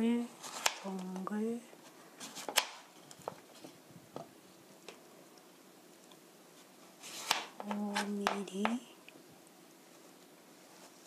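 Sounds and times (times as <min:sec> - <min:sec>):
knife cutting vegetable: 0:00.4 - 0:01.1, 0:02.2 - 0:02.9, 0:07.0 - 0:08.4.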